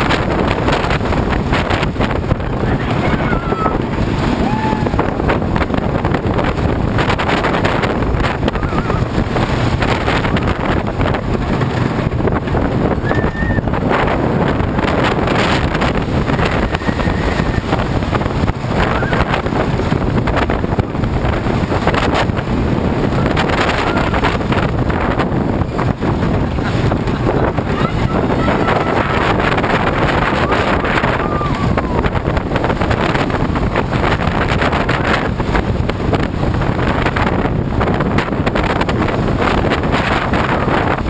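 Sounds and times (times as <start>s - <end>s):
roller coaster wheels rumbling on track: 0.0s - 41.0s
wind buffeting microphone: 0.0s - 41.0s
riders screaming and shouting: 2.3s - 5.4s, 8.2s - 9.3s, 12.9s - 14.1s, 15.8s - 19.6s, 23.0s - 24.6s, 27.0s - 32.4s.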